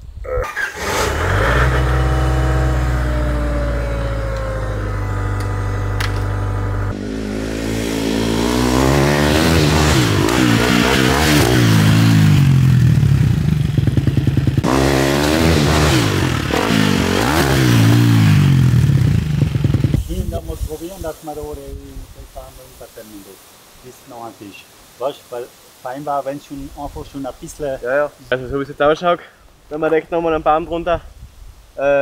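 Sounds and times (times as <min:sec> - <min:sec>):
motorbike engine revving: 0:00.4 - 0:20.8.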